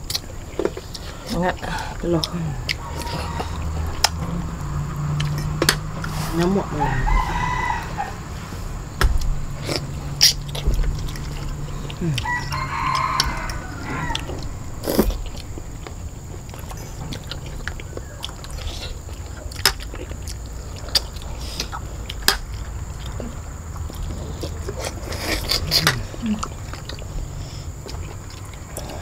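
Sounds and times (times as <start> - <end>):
chewing: 0.0 - 29.0
distant rooster crowing: 1.8 - 10.2, 11.2 - 15.8, 17.3 - 18.6.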